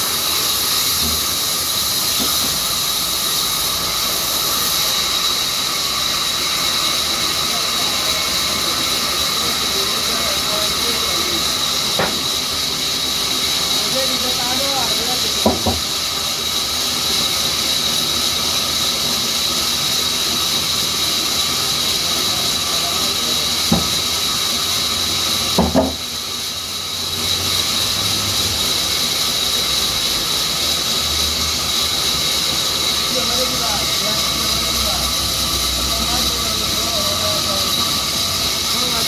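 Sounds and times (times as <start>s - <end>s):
band saw whining: 0.0s - 39.0s.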